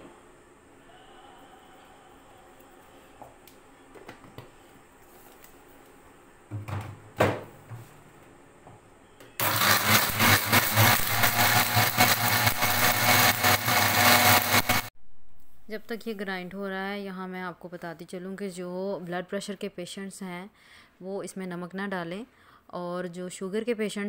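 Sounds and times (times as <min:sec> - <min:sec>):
blender motor grinding: 0:09.4 - 0:14.9.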